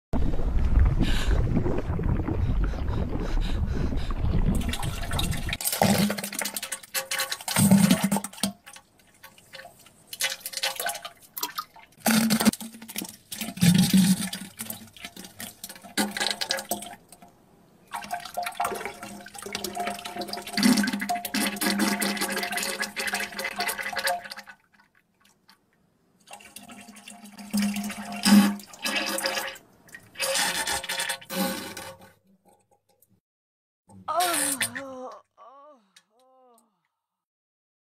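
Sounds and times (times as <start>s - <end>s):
splashing in toilet: 0.6s - 17.0s, 17.9s - 25.3s, 26.3s - 32.0s.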